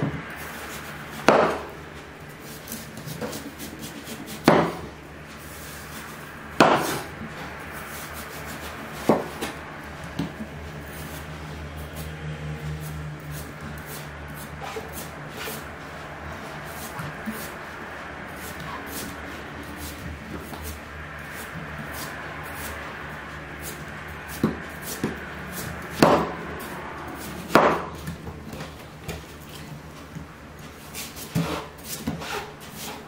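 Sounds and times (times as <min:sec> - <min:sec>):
knife scraping watermelon rind: 0:10.9 - 0:15.6, 0:30.8 - 0:33.0.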